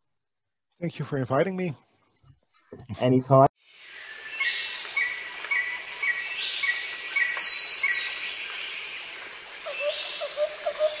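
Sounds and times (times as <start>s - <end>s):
steady high hiss: 3.6s - 11.0s
bird chirps: 3.7s - 11.0s.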